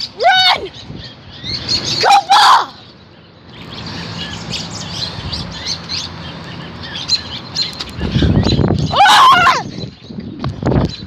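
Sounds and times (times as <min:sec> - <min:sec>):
small bird chirping: 0:02.8 - 0:08.9.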